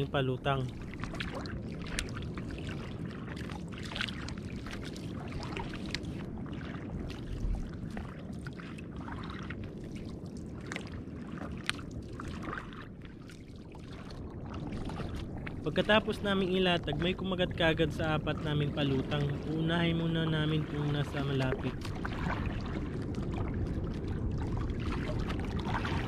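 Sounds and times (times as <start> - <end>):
paddle pulling through water: 0.0 - 26.0
water splashing: 0.0 - 26.0
water washing along hull: 0.0 - 26.0.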